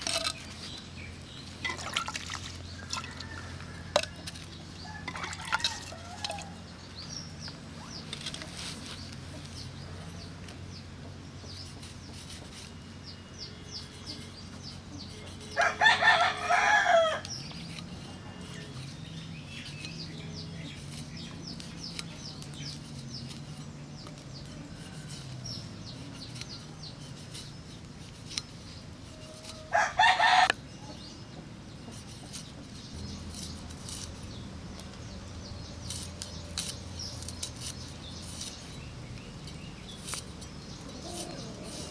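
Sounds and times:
small birds chirping: 0:00.0 - 0:41.9
rooster crowing: 0:15.6 - 0:17.2, 0:29.6 - 0:30.5.

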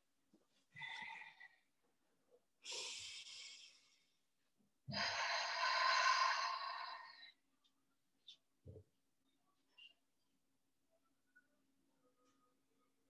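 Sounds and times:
breathing close to microphone: 0:04.9 - 0:07.3.

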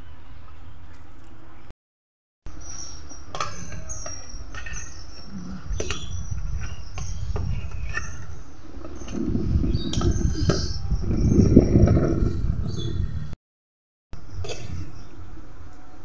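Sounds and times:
steady low rumble: 0:08.6 - 0:13.4.

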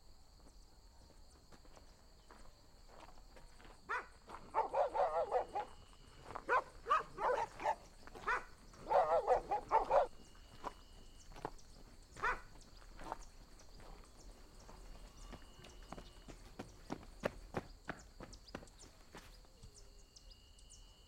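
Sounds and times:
dog barking: 0:03.9 - 0:10.8, 0:12.2 - 0:12.6.

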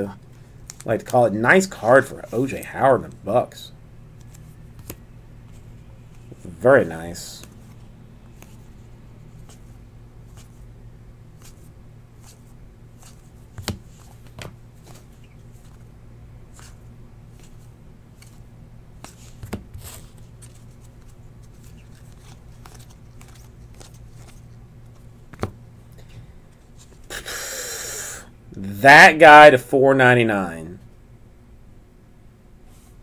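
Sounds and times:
steady low hum: 0:00.0 - 0:33.0
trading cards sliding by hand: 0:04.2 - 0:10.6, 0:11.4 - 0:15.9, 0:16.5 - 0:18.4, 0:19.0 - 0:25.0.

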